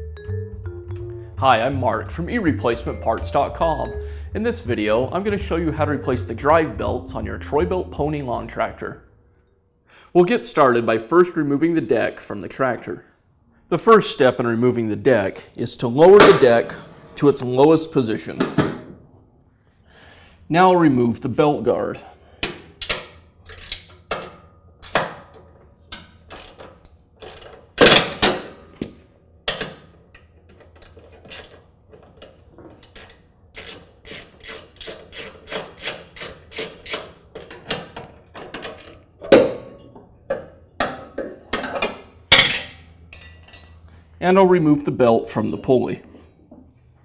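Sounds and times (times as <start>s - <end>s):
socket wrench ratcheting clicks: 22.8s - 24.2s, 24.8s - 25.1s, 26.0s - 27.6s, 32.8s - 37.2s.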